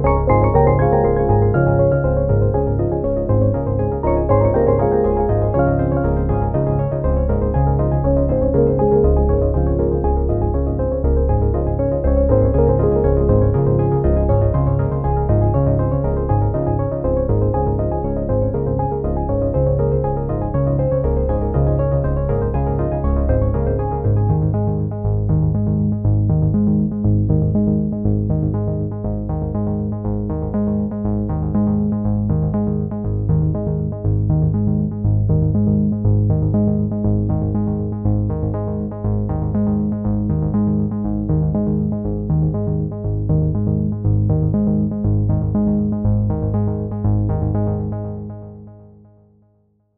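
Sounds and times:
electronic synthesizer music: 0.0 - 15.4.

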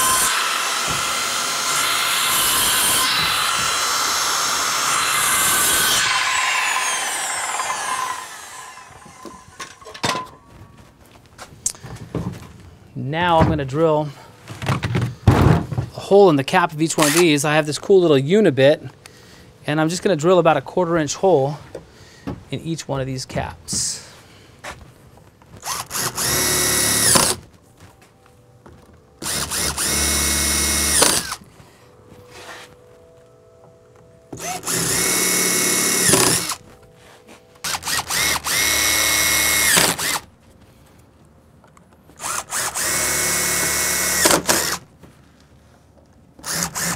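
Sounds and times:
cordless drill boring through plastic: 0.0 - 9.6, 17.0 - 17.2, 25.6 - 27.4, 29.2 - 31.4, 34.4 - 36.6, 37.6 - 40.2, 42.2 - 44.8, 46.4 - 46.9
circular saw blade winding down: 0.0 - 9.8, 34.4 - 36.6.

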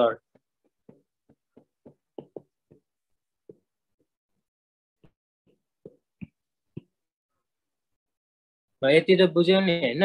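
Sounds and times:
stylus tapping on writing tablet: 0.3 - 3.7.

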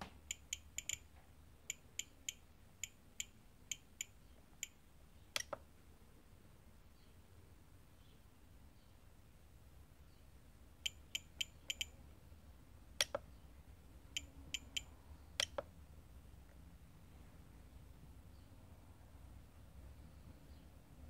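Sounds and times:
transmitter scroll wheel clicks: 0.3 - 1.0.

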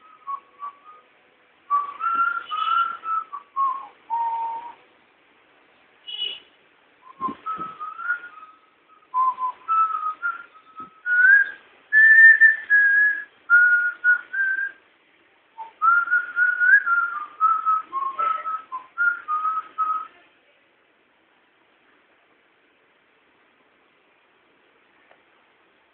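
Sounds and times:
person whistling a tune: 1.7 - 4.8, 7.0 - 14.8, 15.6 - 20.1.

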